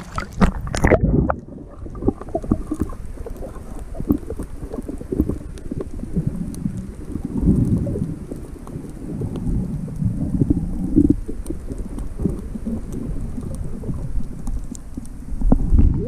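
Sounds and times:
short underwater clicks and knocks: 0.0 - 1.1
bubbling: 0.0 - 16.0
underwater rumble of moving water: 0.0 - 16.0.

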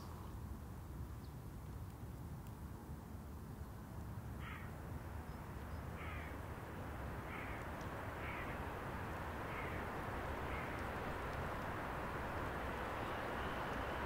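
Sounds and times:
low background rumble: 4.4 - 14.0
bird harsh calls: 9.5 - 10.8.

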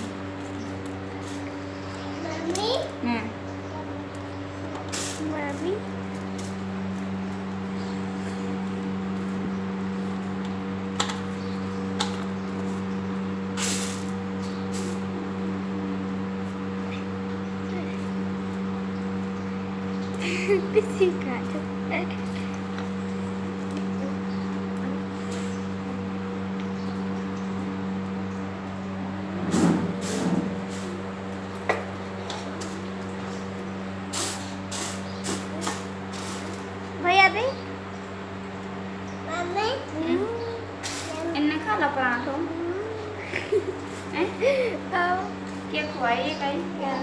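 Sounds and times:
low hum: 0.0 - 47.0
noisy bursts: 28.6 - 37.5.

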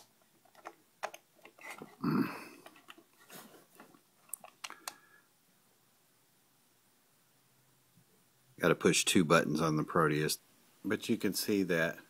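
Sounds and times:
handling noise of glasses and cable: 0.0 - 5.0
low grunt: 2.0 - 2.6.

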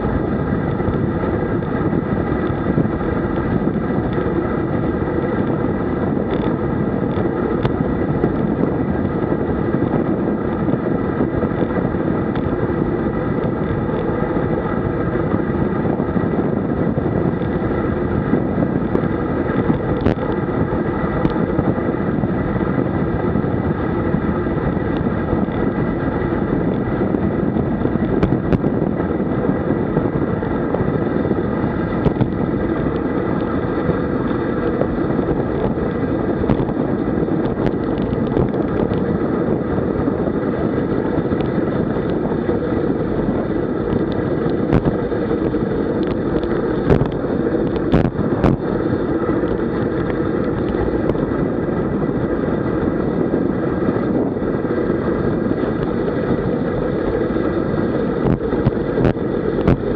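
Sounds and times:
wind rush on microphone: 0.0 - 59.9.

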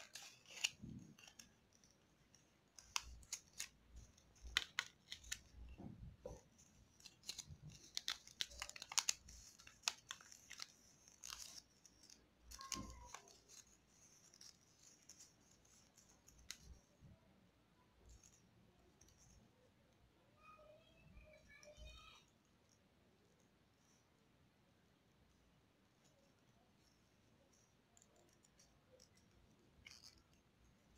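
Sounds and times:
paper being folded and creased: 0.0 - 17.0.

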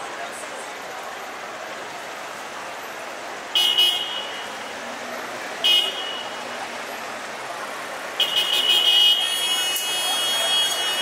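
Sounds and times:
street noise: 0.0 - 11.0
car horn honking: 3.6 - 4.5, 5.6 - 6.4, 8.2 - 11.0.

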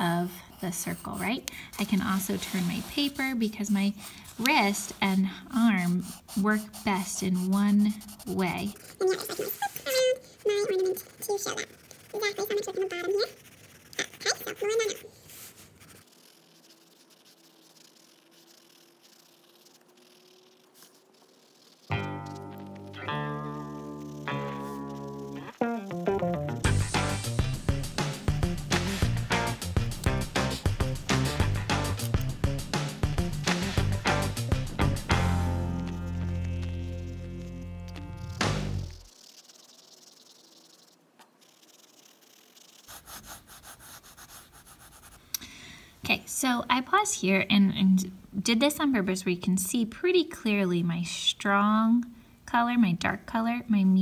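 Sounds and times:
pencil scratching on paper: 0.0 - 25.6, 26.7 - 45.2
background music: 22.0 - 38.9.

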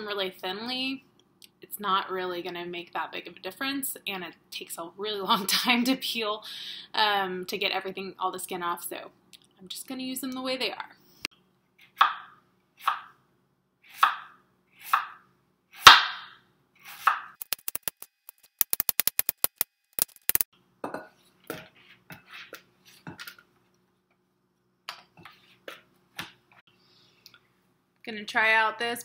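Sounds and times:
knife chopping on cutting board: 14.0 - 15.2.

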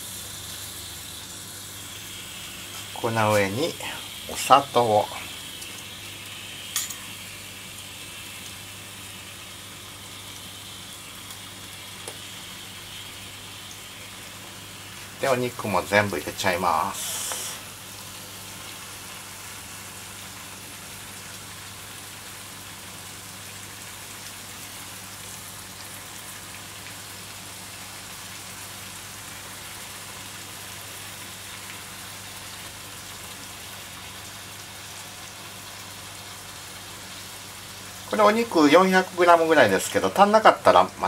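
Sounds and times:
meat sizzling in a frying pan: 0.0 - 41.0.

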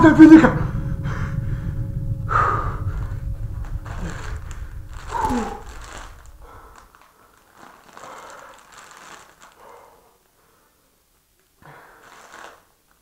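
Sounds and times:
low rumble: 0.0 - 8.0
crisp packet crinkling: 6.8 - 9.8, 11.9 - 13.0.

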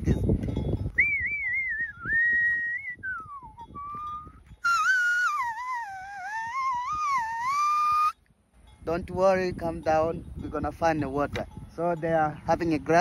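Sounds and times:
person whistling: 1.0 - 8.2.

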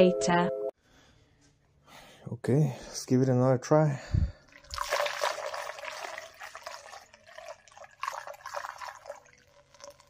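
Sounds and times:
coolant pouring through funnel: 4.4 - 10.0.

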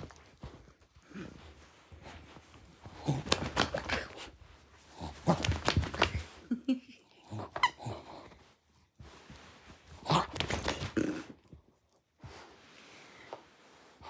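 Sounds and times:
dog gnawing toy: 5.0 - 6.2.

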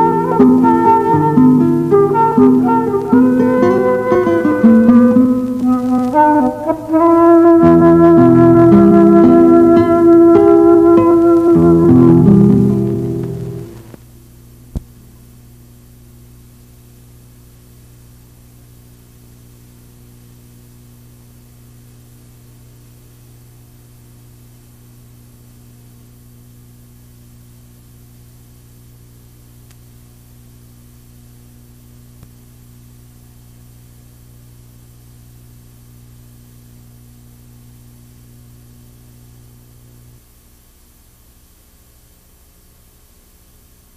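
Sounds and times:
faint tape hiss: 0.0 - 43.9
low hum: 11.2 - 14.0.

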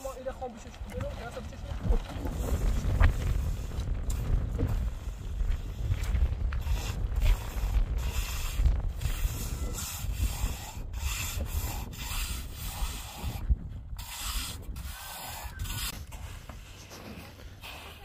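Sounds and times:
wind rumbling on microphone: 0.0 - 17.8
trowel scraping wet mortar: 6.6 - 18.0.

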